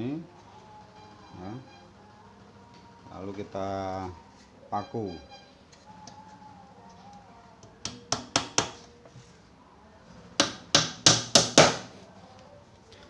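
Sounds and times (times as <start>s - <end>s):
hammer driving nails into wood: 7.8s - 8.9s, 10.4s - 11.9s.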